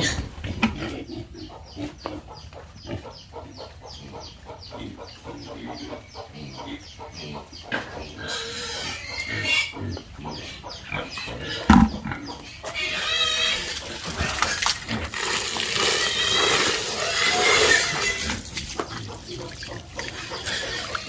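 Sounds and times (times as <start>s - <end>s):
pigs squealing: 0.0s - 21.0s.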